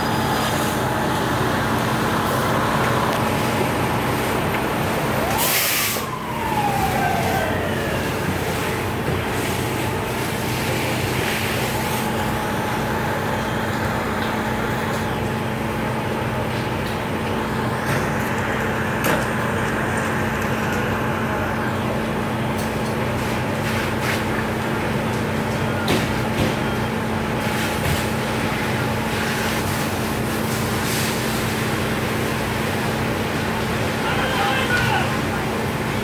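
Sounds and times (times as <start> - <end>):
diesel engines running: 0.0 - 36.0.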